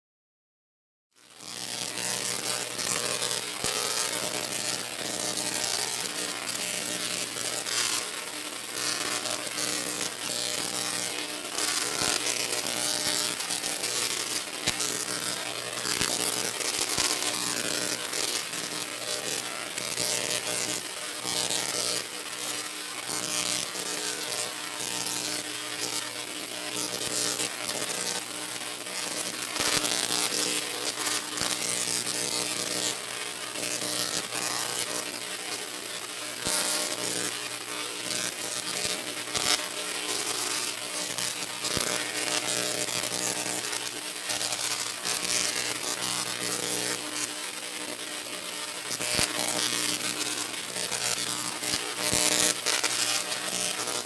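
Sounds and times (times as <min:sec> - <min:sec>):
spark discharge crackle: 0:01.2 - 0:54.0
tesla coil electric buzz: 0:01.2 - 0:54.0.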